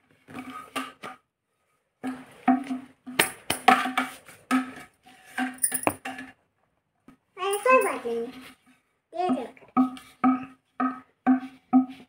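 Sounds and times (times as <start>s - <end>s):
hollow plastic tubes knocking: 2.0s - 6.4s, 9.2s - 12.0s.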